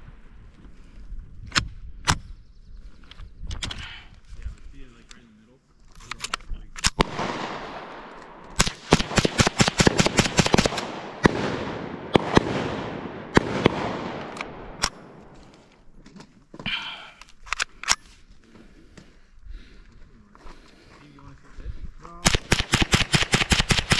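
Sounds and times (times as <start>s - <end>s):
rifle shots echoing: 6.9s - 15.5s, 22.2s - 23.9s.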